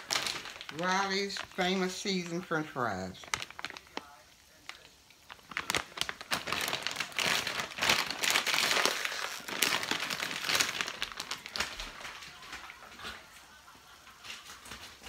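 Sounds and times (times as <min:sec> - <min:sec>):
plastic bag crinkling: 0:00.0 - 0:13.3.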